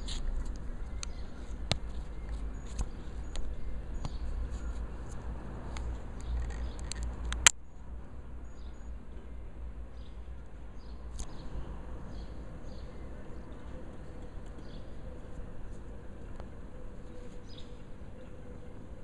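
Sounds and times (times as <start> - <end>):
camera handling rumble: 0.0 - 7.6.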